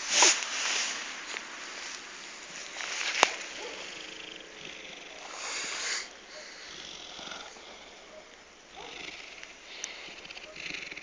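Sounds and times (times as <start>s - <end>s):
dog breathing: 3.6s - 11.0s.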